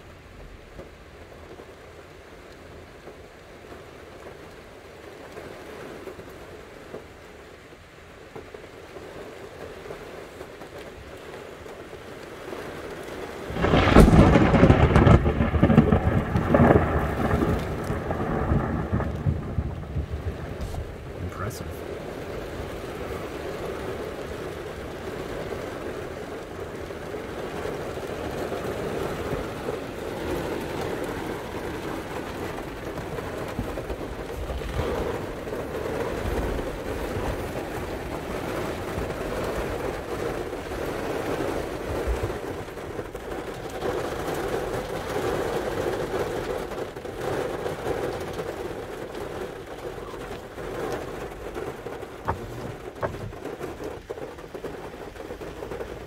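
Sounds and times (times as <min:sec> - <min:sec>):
heavy rain and wind: 0:00.0 - 0:56.0
deep thunder rumbles: 0:13.5 - 0:56.0.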